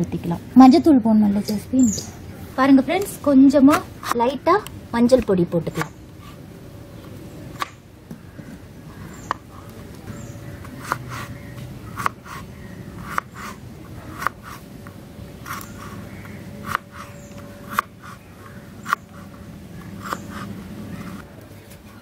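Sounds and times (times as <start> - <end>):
knife chopping on cutting board: 10.7 - 11.3.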